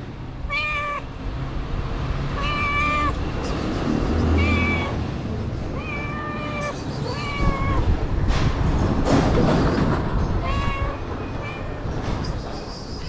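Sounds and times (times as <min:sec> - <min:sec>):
cat meowing: 0:00.5 - 0:01.1, 0:02.4 - 0:03.3, 0:04.3 - 0:05.0, 0:05.7 - 0:08.0, 0:10.4 - 0:12.0.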